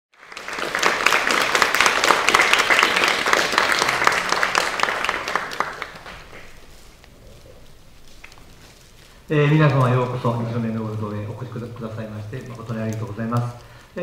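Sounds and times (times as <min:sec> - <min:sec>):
audience applauding: 0:00.1 - 0:08.6.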